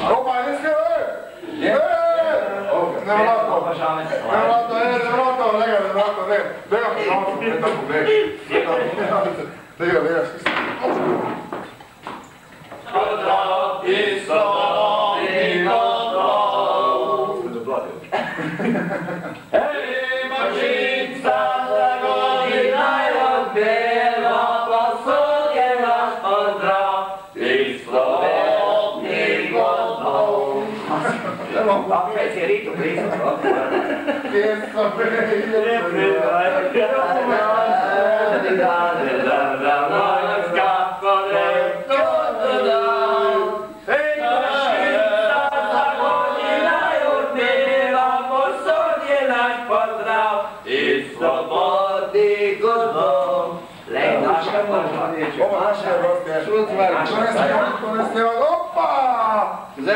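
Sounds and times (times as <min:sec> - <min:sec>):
men singing unaccompanied: 0:12.8 - 0:17.9, 0:19.4 - 0:59.0.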